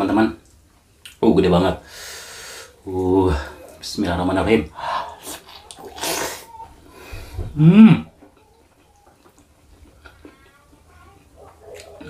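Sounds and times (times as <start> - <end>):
man hissing breath: 1.8 - 2.8
man humming mmm while chewing: 7.6 - 8.3.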